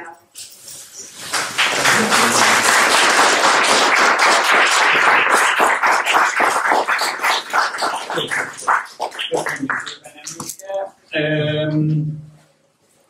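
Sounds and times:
audience applauding: 1.2s - 10.2s.

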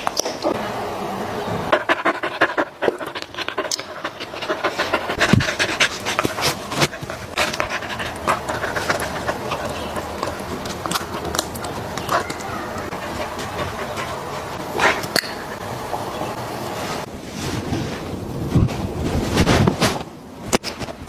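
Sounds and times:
puppy panting: 1.7s - 16.4s.

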